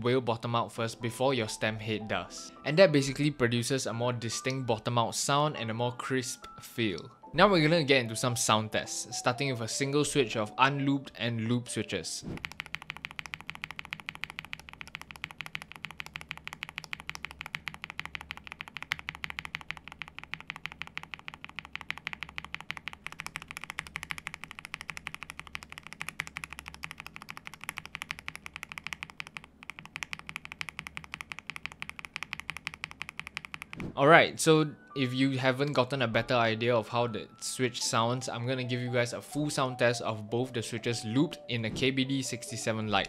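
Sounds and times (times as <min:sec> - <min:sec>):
keyboard switch clacking: 0:12.4 - 0:33.9.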